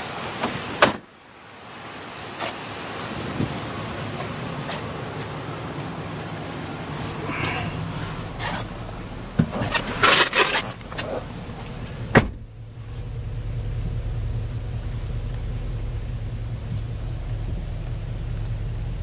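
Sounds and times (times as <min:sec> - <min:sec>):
car door shutting: 0:00.4 - 0:01.0, 0:09.3 - 0:12.6
truck engine idling hum: 0:03.6 - 0:19.0
clattering and rustling objects: 0:09.4 - 0:12.4.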